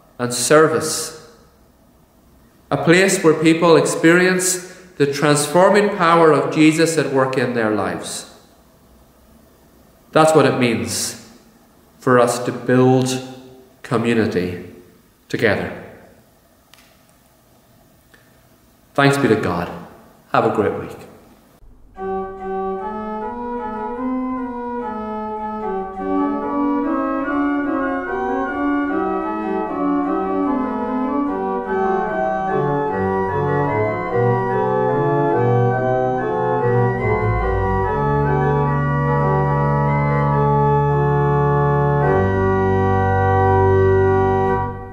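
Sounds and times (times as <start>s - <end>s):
organ playing sustained chords: 2.7s - 8.4s, 21.6s - 44.9s.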